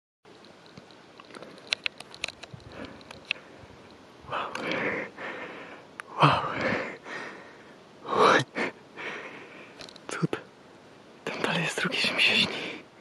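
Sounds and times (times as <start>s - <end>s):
person breathing heavily: 2.6s - 3.7s, 4.3s - 9.8s.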